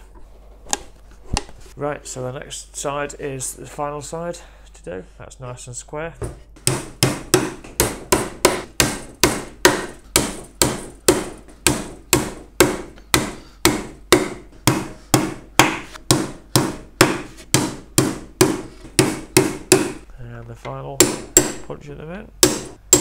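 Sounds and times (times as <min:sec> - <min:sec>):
hammer driving nails into wood: 0:06.6 - 0:20.0, 0:21.0 - 0:21.6, 0:22.4 - 0:23.0.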